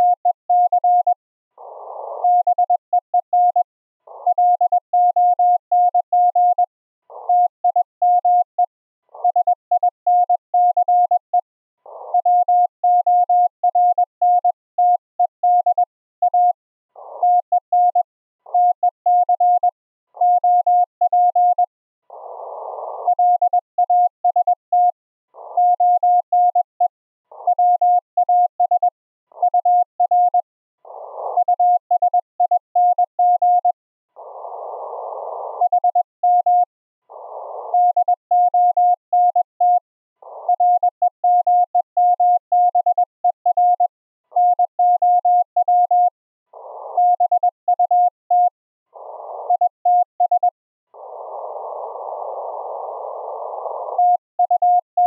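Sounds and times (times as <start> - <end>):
morse code tone: 0.0 - 1.2.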